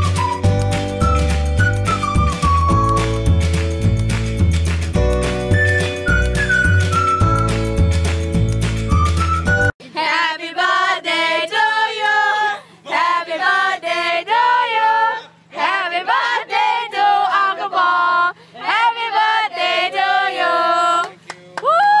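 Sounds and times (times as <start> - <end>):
people singing unaccompanied: 9.8 - 21.2.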